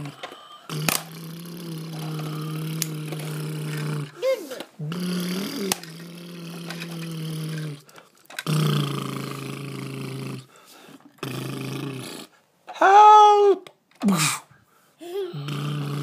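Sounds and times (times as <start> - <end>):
man growling low: 0.0 - 10.5, 15.2 - 16.0.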